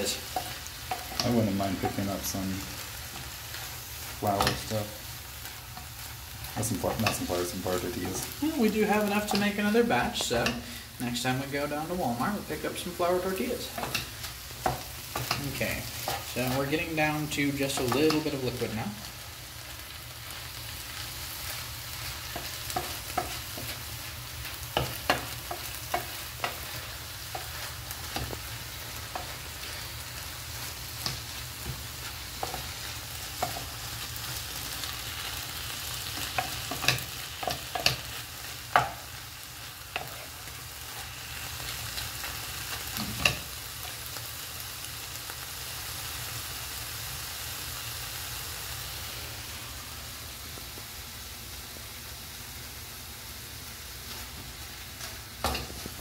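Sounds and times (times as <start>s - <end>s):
food sizzling in a frying pan: 0.0s - 56.0s
wooden spoon scraping a pan: 11.9s - 18.9s, 21.2s - 43.6s.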